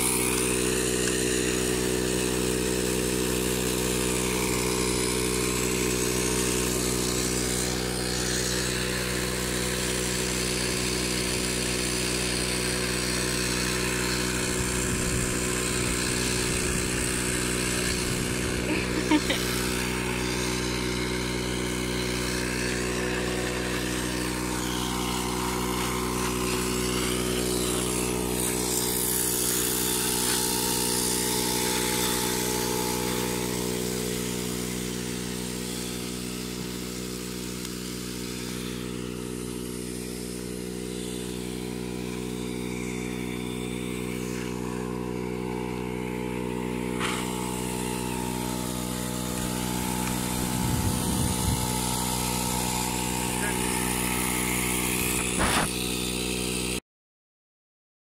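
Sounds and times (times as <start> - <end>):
machine motor humming: 0.0 - 56.4
short click: 55.2 - 55.7.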